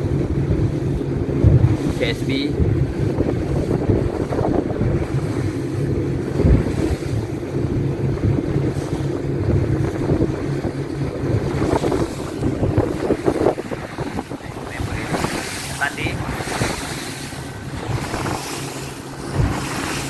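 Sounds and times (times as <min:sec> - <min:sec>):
boat engine running: 0:00.0 - 0:20.0
hull moving through water: 0:00.0 - 0:20.0
wind buffeting microphone: 0:00.0 - 0:20.0
low thump: 0:01.4 - 0:01.8.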